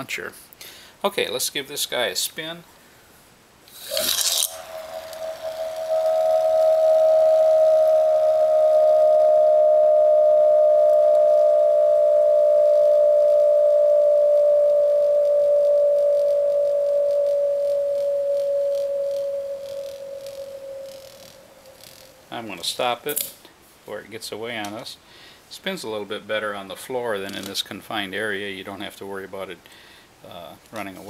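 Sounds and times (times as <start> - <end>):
whistling top spinning: 3.8 - 22.9.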